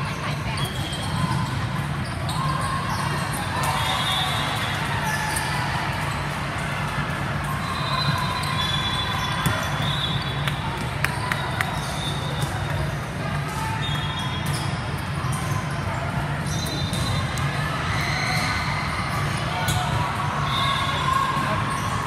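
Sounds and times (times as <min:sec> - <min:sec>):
murmur of voices echoing: 0:00.0 - 0:22.0
volleyballs being hit and bouncing: 0:04.5 - 0:13.7.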